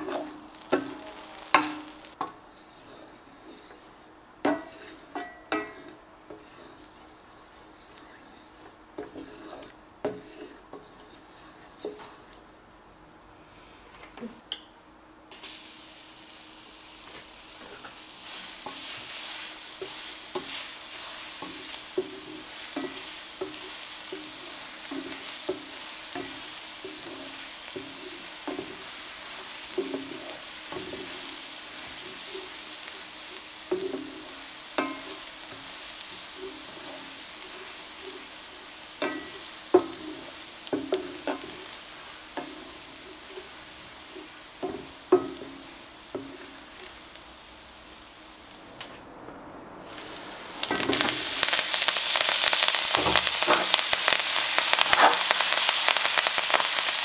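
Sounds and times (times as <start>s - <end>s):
butter sizzling: 0.0s - 13.1s, 15.3s - 57.0s
spatula scraping pot bottom: 2.5s - 7.0s, 7.7s - 12.3s.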